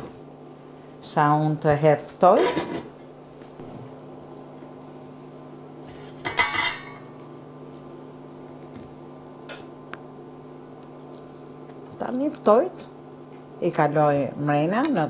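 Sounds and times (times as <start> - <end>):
induction hob hum: 0.0 - 15.0
metal pot lid clattering: 6.2 - 7.0.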